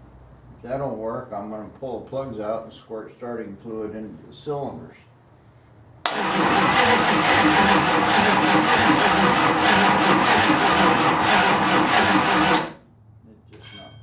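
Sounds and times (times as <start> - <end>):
starter motor cranking engine: 6.1 - 12.8.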